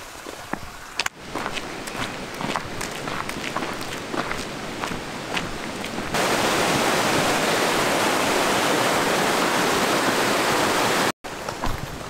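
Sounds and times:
footsteps on dirt road: 0.0s - 6.2s, 11.4s - 12.0s
stream rushing over rocks: 0.0s - 12.0s.

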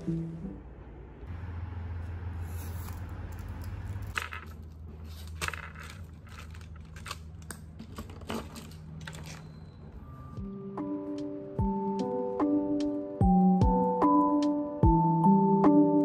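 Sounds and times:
pens clicking and rattling: 4.0s - 9.4s.

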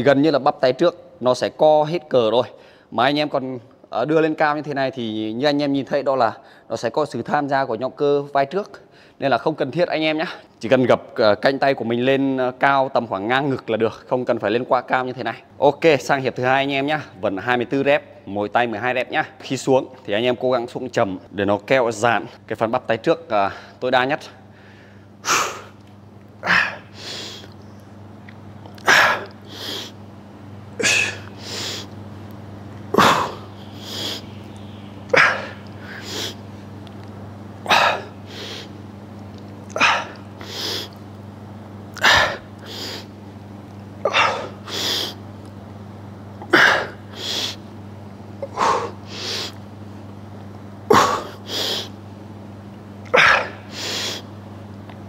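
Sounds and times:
man breathing forcefully: 24.5s - 25.7s, 26.4s - 27.5s, 28.8s - 30.0s, 30.8s - 32.0s, 33.0s - 34.3s, 35.2s - 36.4s, 37.7s - 38.7s, 39.8s - 41.0s, 42.0s - 43.2s, 44.1s - 45.2s, 46.5s - 47.6s, 48.4s - 49.6s, 50.9s - 52.0s, 53.2s - 54.3s
low hum: 25.7s - 51.4s.

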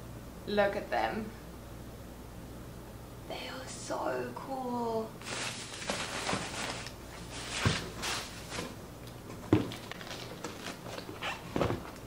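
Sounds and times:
packaging rustling: 5.2s - 12.0s
shoes knocking on cardboard box: 7.6s - 7.9s, 9.5s - 9.8s.

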